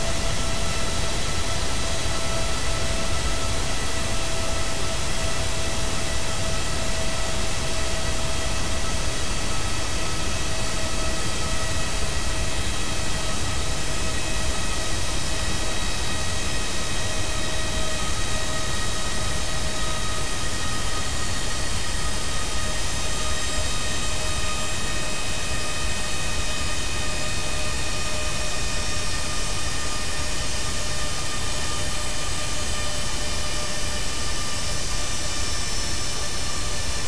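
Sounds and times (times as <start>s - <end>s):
jet engine running down: 0.0s - 37.0s
jet engine whining tones: 0.0s - 37.0s.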